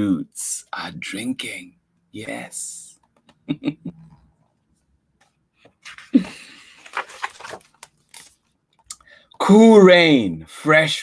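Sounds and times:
man chuckling: 0:03.4 - 0:04.1, 0:06.0 - 0:06.9
book page turning: 0:05.2 - 0:08.5.

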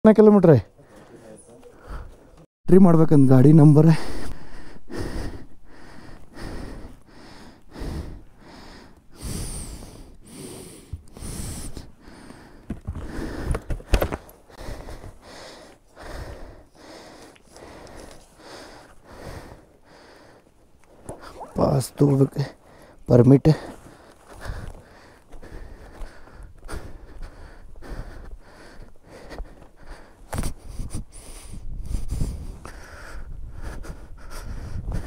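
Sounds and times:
breathy puffs: 0:00.8 - 0:02.5, 0:04.0 - 0:35.0.

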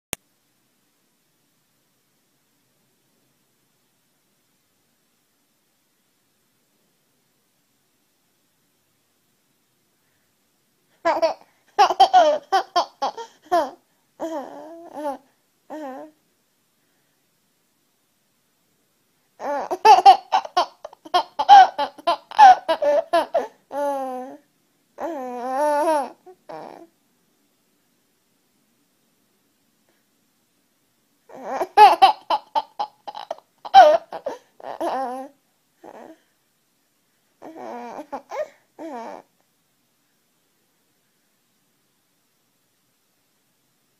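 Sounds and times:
baby laughing: 0:11.0 - 0:16.0, 0:19.4 - 0:24.4, 0:31.3 - 0:35.3.

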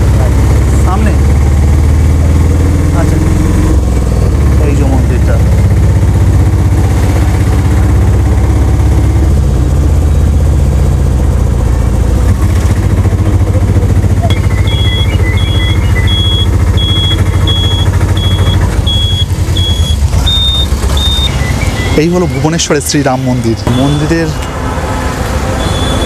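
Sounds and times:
auto-rickshaw engine running: 0:00.0 - 0:26.0
high electronic beeps: 0:14.1 - 0:24.4, 0:25.6 - 0:26.0.

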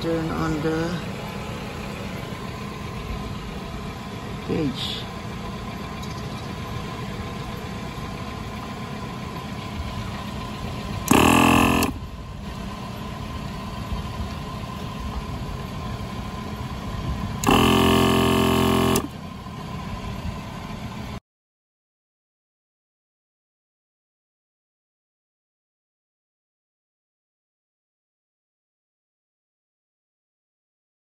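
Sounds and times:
air compressor running: 0:08.2 - 0:13.4, 0:17.0 - 0:19.4
vehicle horn honks: 0:11.0 - 0:12.0, 0:17.4 - 0:19.1.

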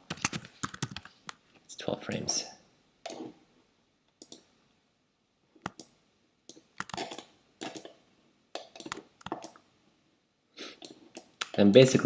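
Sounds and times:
mouse clicks: 0:04.1 - 0:04.5, 0:05.6 - 0:08.0.

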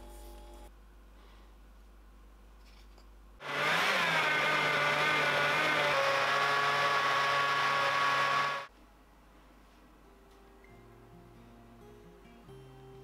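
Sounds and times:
blender motor whine: 0:03.4 - 0:08.7.

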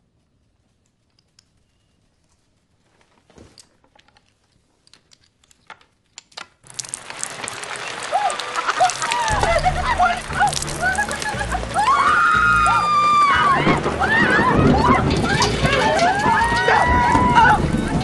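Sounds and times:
game pieces clicking on wooden board: 0:03.9 - 0:12.6
rain downpour: 0:06.7 - 0:18.0.

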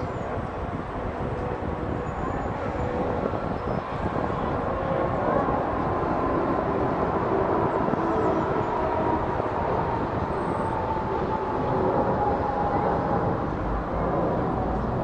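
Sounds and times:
jet airliner climbing: 0:00.0 - 0:15.0.

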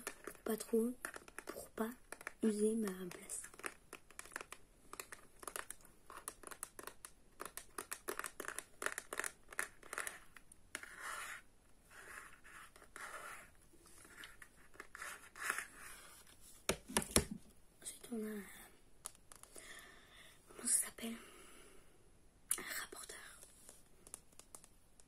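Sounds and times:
fingertips tapping object: 0:00.0 - 0:11.4
fingertips scratching object: 0:00.0 - 0:16.3.

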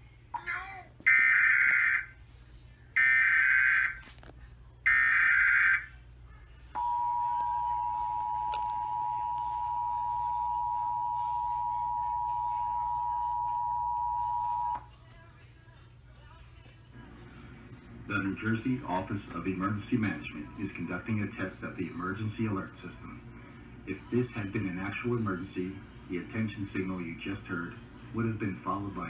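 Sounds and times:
two-tone attention signal: 0:06.8 - 0:14.8.

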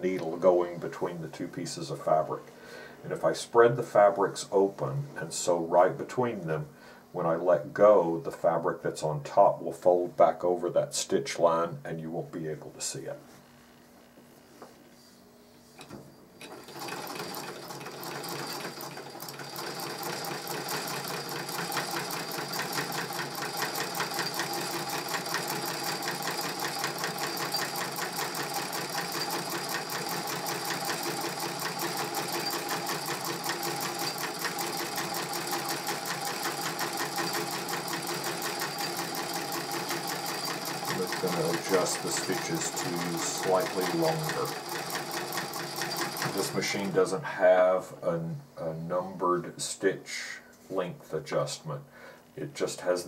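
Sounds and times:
treadle sewing machine ticking: 0:16.4 - 0:47.0.

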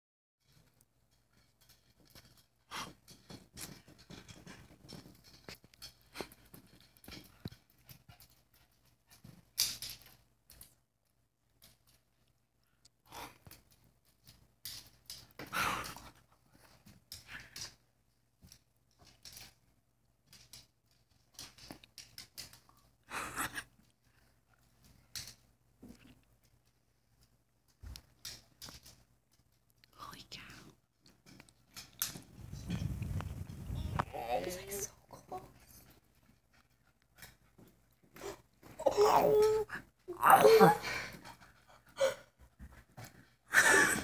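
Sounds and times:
dog claws clicking on tile: 0:00.4 - 0:29.9, 0:30.7 - 0:33.3.

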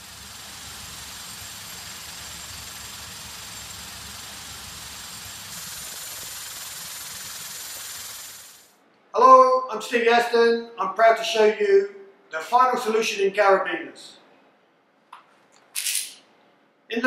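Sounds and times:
vibratory finishing machine running: 0:00.0 - 0:08.7.

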